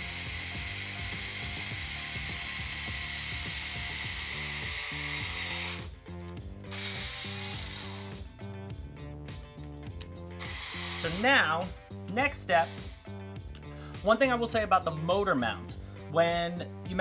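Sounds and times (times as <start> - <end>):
cordless screwdriver drilling wood: 0.0 - 6.0, 6.7 - 8.2, 10.4 - 11.6, 12.5 - 13.2
background music with beat: 0.0 - 17.0.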